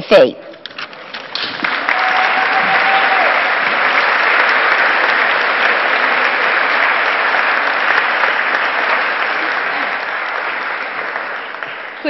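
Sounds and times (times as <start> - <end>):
audience applauding: 1.1 - 12.0.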